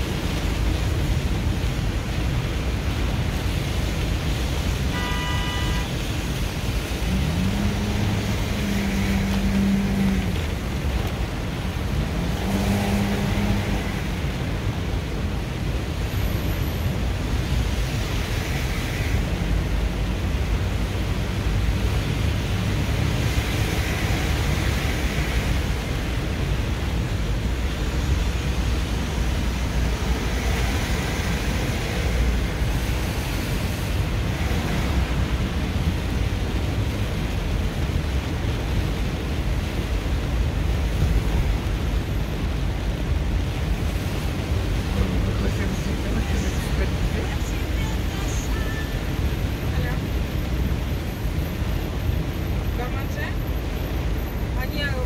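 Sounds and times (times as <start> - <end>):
heavy rain on car: 0.0 - 55.0
tyres on flooded road: 0.0 - 55.0.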